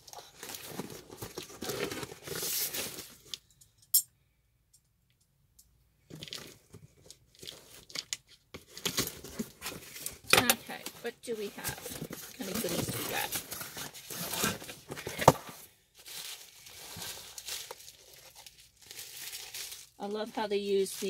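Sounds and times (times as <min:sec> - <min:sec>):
cardboard rustling: 0:00.1 - 0:03.3, 0:08.6 - 0:21.0
packing tape tearing off box: 0:11.5 - 0:20.0.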